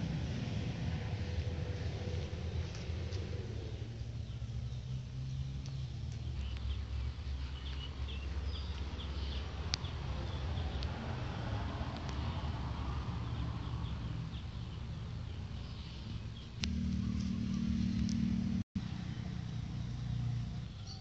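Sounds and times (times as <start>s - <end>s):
steady low rumble: 0.0s - 11.0s, 16.4s - 18.7s
small birds chirping: 2.1s - 21.0s.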